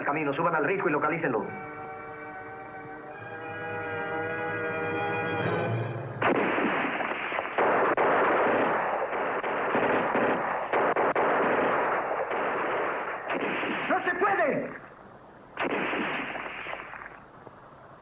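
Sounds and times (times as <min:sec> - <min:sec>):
held chord of soundtrack music: 0:01.1 - 0:06.3
dense gunfire: 0:06.2 - 0:14.9, 0:15.6 - 0:17.2.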